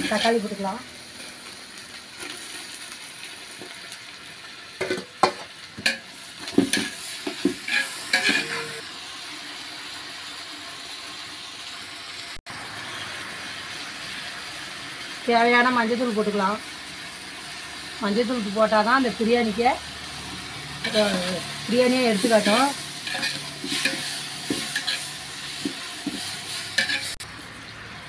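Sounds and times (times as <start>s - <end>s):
vegetables sizzling in oil: 0.0s - 28.0s
metal ladle scraping pot: 5.8s - 8.8s, 22.3s - 27.2s.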